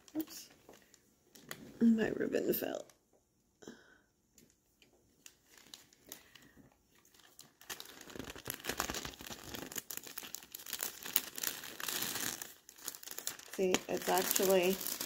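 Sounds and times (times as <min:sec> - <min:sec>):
cellophane crinkling: 0:00.0 - 0:02.9, 0:04.4 - 0:15.0.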